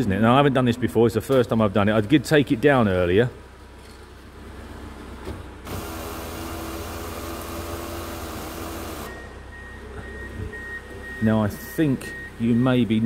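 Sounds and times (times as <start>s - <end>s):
electric roof motor humming: 5.6s - 9.1s.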